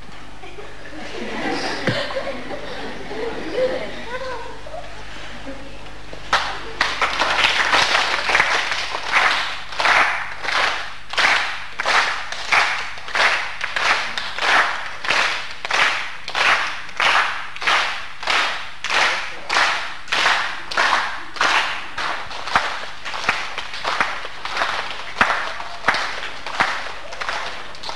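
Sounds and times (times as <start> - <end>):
group of people clapping: 6.3 - 27.9.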